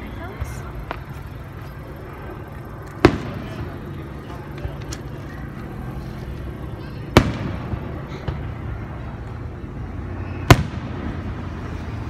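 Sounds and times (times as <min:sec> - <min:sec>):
fireworks bangs: 0:03.0 - 0:03.8, 0:07.0 - 0:08.7, 0:10.2 - 0:11.8.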